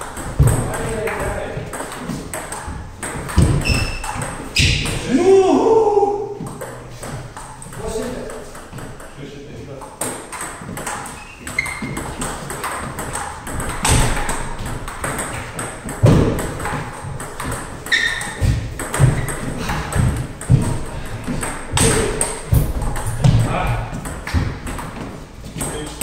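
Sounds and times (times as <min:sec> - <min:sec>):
ping pong ball clicking: 0:00.0 - 0:05.0, 0:06.4 - 0:09.2, 0:09.8 - 0:23.4.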